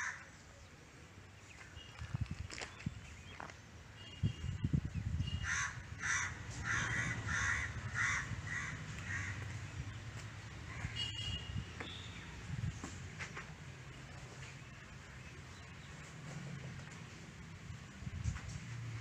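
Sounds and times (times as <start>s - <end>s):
crow cawing: 0.0s - 0.2s, 5.4s - 9.6s.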